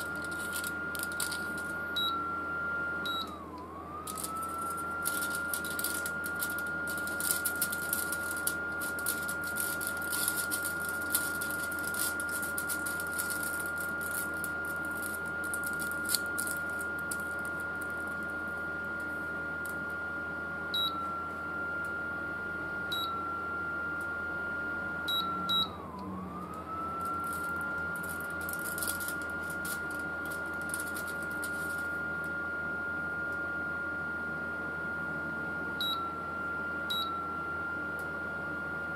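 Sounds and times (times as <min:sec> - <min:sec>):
aluminium foil crinkling: 0:00.0 - 0:01.8, 0:04.1 - 0:18.4, 0:27.0 - 0:32.0
cooling fan high whine: 0:00.0 - 0:38.9
short beeps from control panel: 0:02.0 - 0:02.2, 0:03.0 - 0:03.4, 0:20.7 - 0:21.1, 0:22.9 - 0:23.2, 0:25.1 - 0:25.7, 0:35.8 - 0:36.1, 0:36.9 - 0:37.2.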